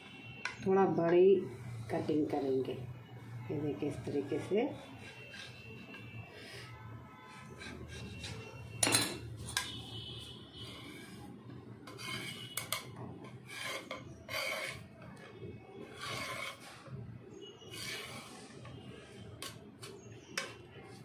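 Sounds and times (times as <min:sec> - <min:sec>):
knife scraping metal plate: 0:04.8 - 0:06.7, 0:07.3 - 0:09.8, 0:11.8 - 0:16.9, 0:17.6 - 0:18.6
dough pieces pushed across plate: 0:11.9 - 0:14.9, 0:15.8 - 0:16.8, 0:17.6 - 0:18.7.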